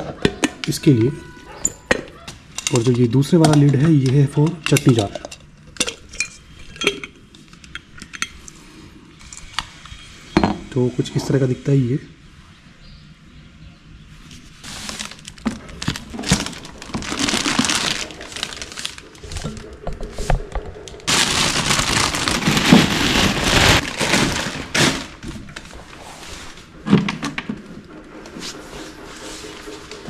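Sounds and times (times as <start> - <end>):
plastic bag crinkling: 14.2 - 26.7.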